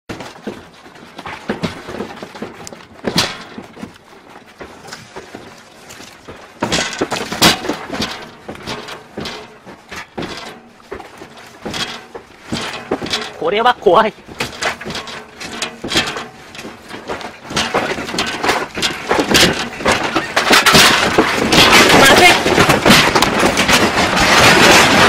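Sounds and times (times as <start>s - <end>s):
furniture and glass doors rattling: 6.6s - 25.0s.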